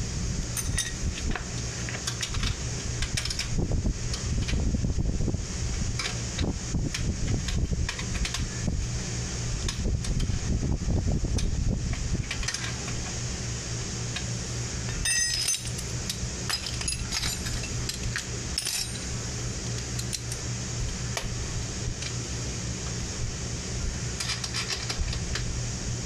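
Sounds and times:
steady low hum: 0.0s - 26.0s
wrench clinking on metal: 15.0s - 15.8s, 16.5s - 18.0s, 18.6s - 19.1s.

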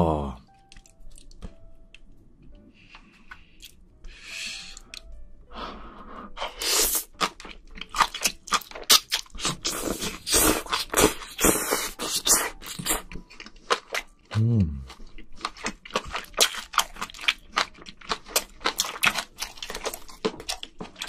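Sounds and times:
chewing crunchy food: 0.7s - 1.6s, 6.5s - 21.0s.

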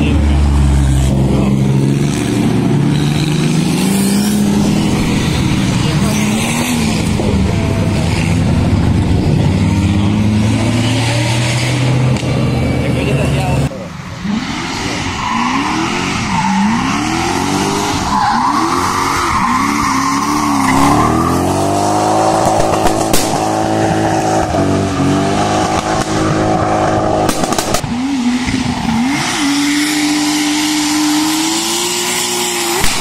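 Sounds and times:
car engine revving hard: 0.0s - 33.0s
tyres squealing and skidding: 12.6s - 33.0s.

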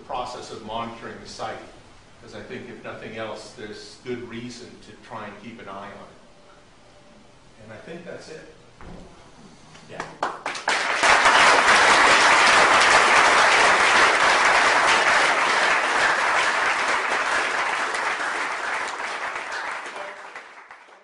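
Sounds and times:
audience applauding: 10.0s - 21.0s.

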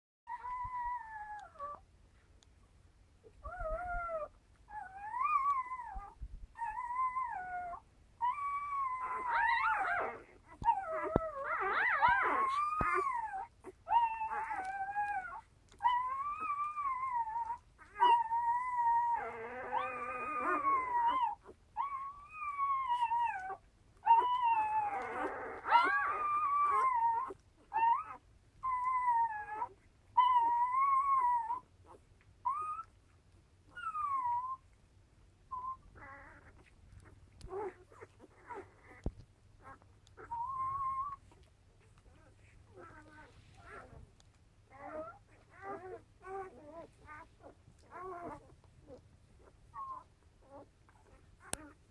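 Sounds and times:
puppies squealing and whining: 3.3s - 34.8s, 35.4s - 51.9s.

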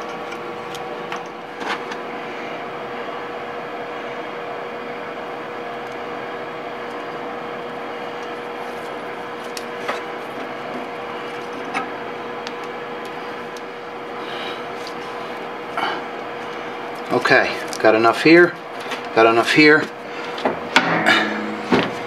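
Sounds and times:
steady background hum: 0.0s - 22.0s.

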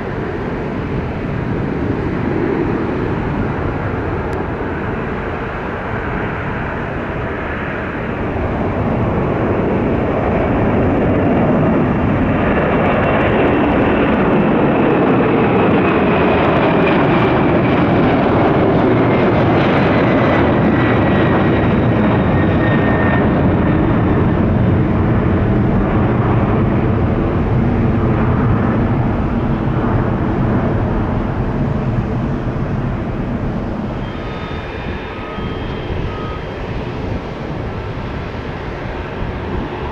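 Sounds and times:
jet engines at takeoff thrust: 0.0s - 39.9s
engine whine sliding down in pitch: 33.8s - 38.0s.

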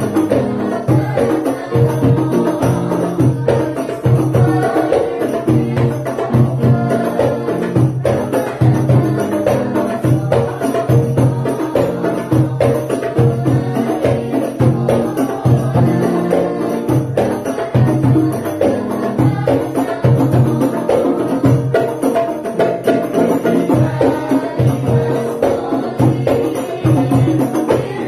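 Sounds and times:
frame drums beating: 0.0s - 28.0s
group singing: 0.0s - 28.0s.

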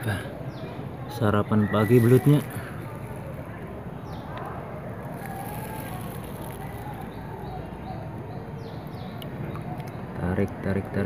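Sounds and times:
distant traffic hum: 0.0s - 11.0s.

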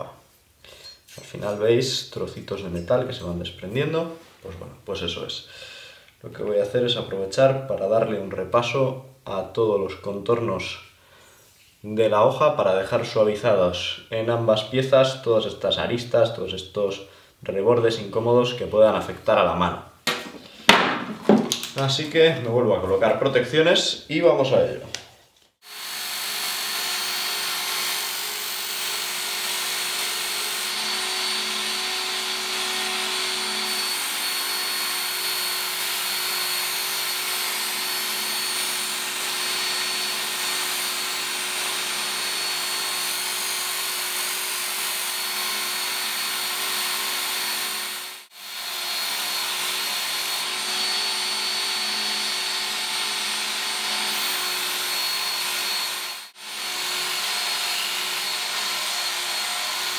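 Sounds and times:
belt sharpener motor whine: 25.7s - 59.9s.

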